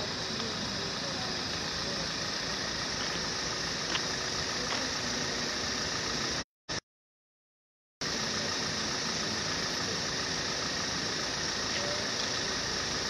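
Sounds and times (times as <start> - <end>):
vehicle engines idling: 0.0 - 6.4, 8.0 - 13.0.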